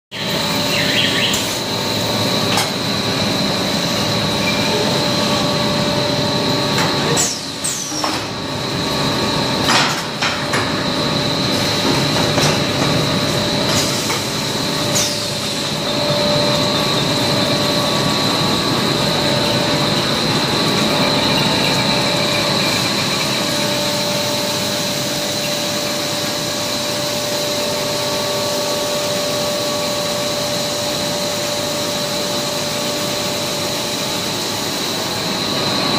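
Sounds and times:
machine droning with high whine: 0.1 - 35.9.

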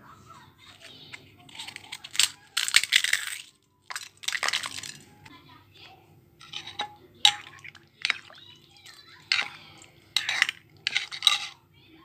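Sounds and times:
liquid sloshing: 3.9 - 5.1, 6.4 - 11.6
spoon clinking against glass bowl: 6.4 - 11.6.

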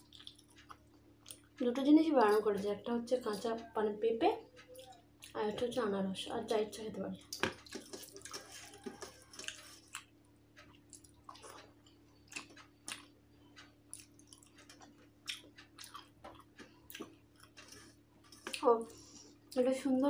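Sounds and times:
person chewing: 0.0 - 1.6, 7.3 - 19.6.

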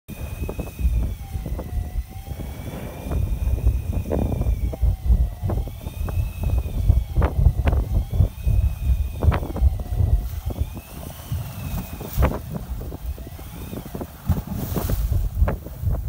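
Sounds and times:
boat engine rumble: 0.1 - 16.0
faint whine: 0.1 - 16.0
wind buffeting microphone: 0.1 - 16.0
waves slapping hull: 7.2 - 16.0.

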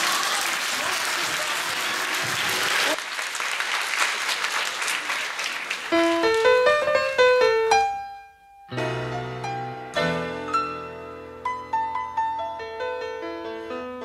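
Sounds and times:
audience applause: 0.0 - 6.8
piano music: 5.9 - 14.0.

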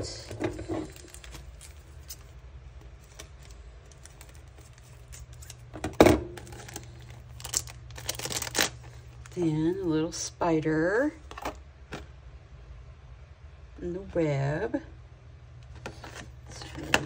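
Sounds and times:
plastic packaging clicks and rattles: 0.8 - 9.4.

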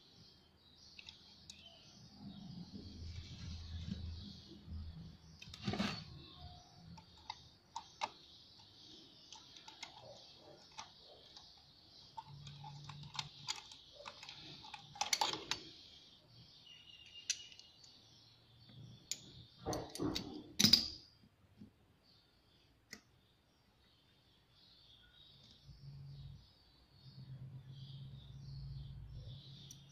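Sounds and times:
metal parts clicking on wooden bench: 5.4 - 16.0, 18.7 - 21.1.

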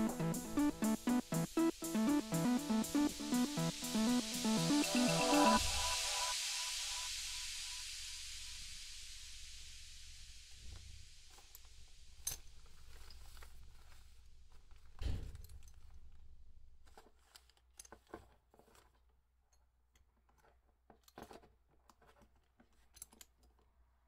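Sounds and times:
steady hiss: 0.0 - 14.5
plastic parts clicking and knocking: 14.5 - 23.8.

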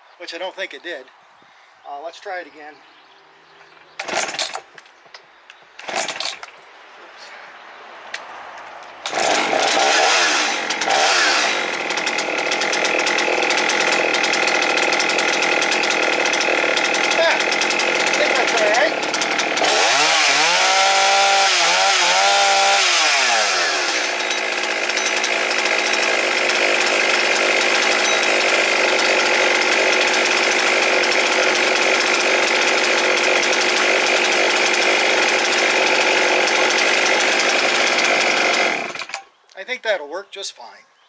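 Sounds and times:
chainsaw revving: 3.9 - 4.8, 5.8 - 6.5, 8.9 - 39.3.

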